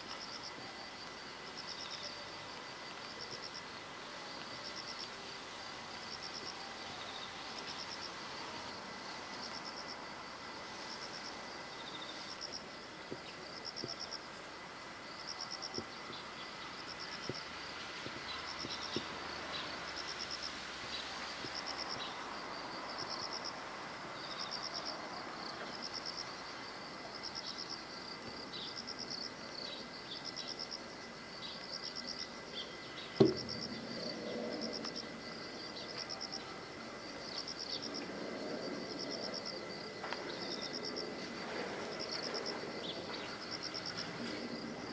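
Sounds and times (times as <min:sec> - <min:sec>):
sharp knock: 0:33.2 - 0:33.5.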